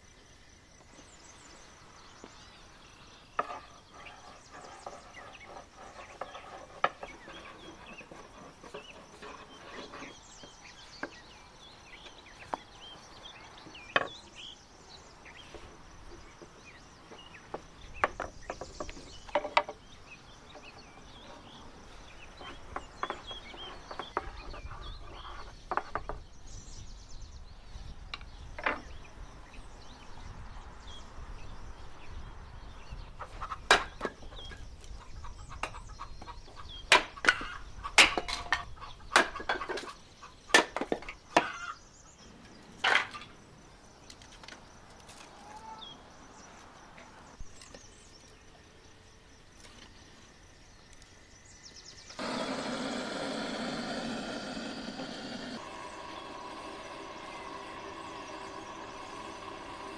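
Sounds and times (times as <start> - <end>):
blowtorch hissing: 52.2 - 59.9.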